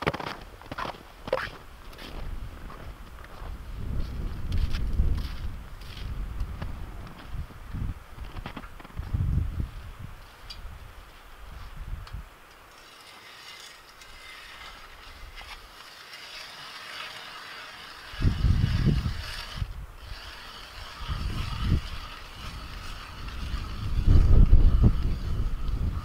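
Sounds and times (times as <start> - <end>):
ice auger grinding through ice: 12.6 - 26.0.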